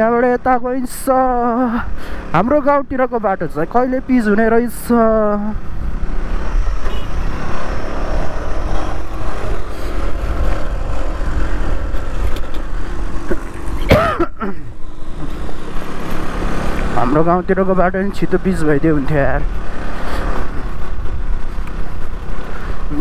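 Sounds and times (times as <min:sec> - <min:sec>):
motorcycle engine rumble: 0:00.0 - 0:23.0
wind noise on microphone: 0:05.6 - 0:13.9, 0:19.5 - 0:23.0.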